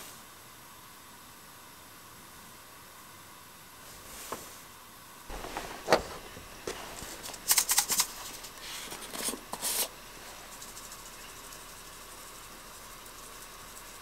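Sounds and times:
faint steady hiss: 0.0s - 14.0s
sharp crinkling and clicking: 5.3s - 9.9s.

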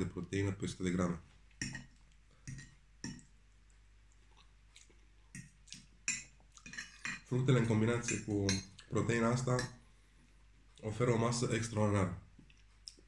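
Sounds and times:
faint chewing: 1.3s - 7.3s, 12.3s - 13.0s.

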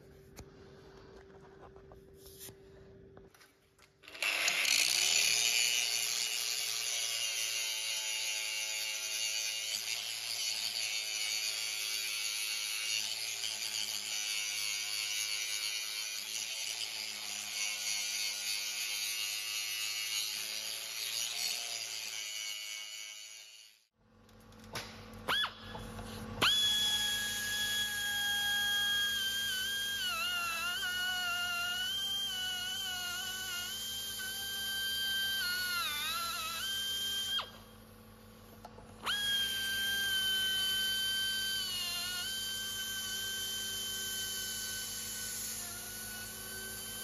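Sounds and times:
angle grinder grinding steel: 4.0s - 23.9s, 26.5s - 37.6s.

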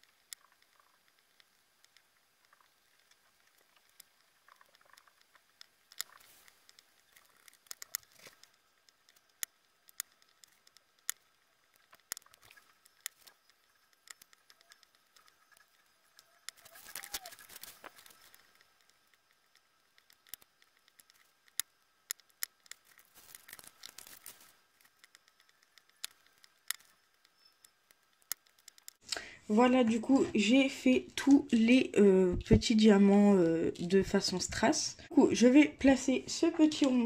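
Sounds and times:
rustling: 0.0s - 29.2s.

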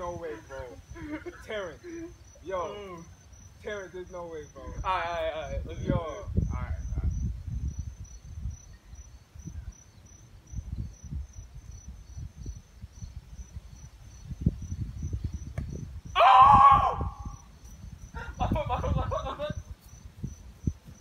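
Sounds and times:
insects chirping: 0.0s - 21.0s
wind rumble on microphone: 4.4s - 21.0s.

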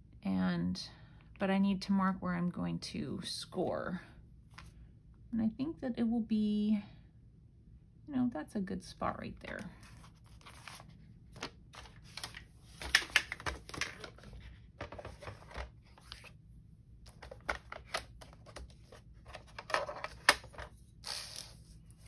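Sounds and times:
paper rustling: 9.5s - 16.3s.

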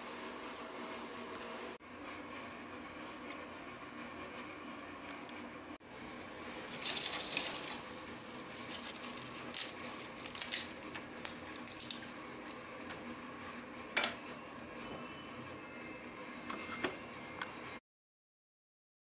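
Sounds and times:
dried ginger snapping and crackling: 6.7s - 13.0s.

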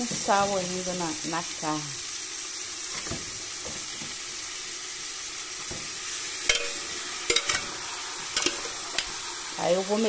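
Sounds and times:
meat sizzling in hot oil: 0.0s - 10.0s
metal spoon clinking on pot: 6.5s - 7.7s, 8.4s - 9.1s.

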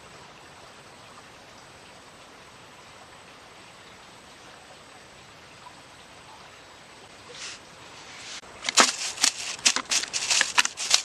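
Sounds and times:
faint outdoor hiss: 0.0s - 11.0s
fish flapping in plastic bucket: 8.6s - 11.0s.

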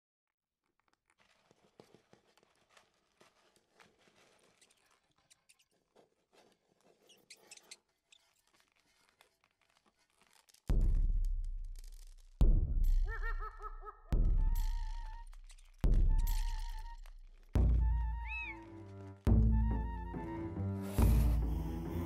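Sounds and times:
faint crackles and ticks: 0.4s - 13.1s.

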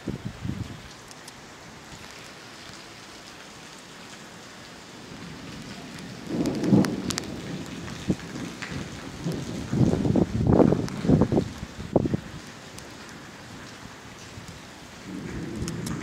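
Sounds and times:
steady rain falling: 0.0s - 16.0s
thunder rumble: 5.0s - 16.0s.

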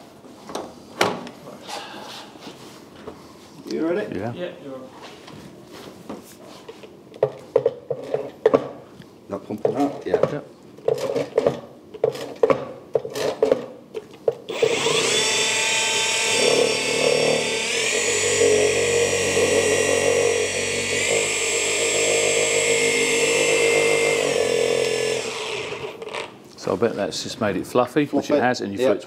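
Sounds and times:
polisher motor whine: 14.5s - 26.0s.

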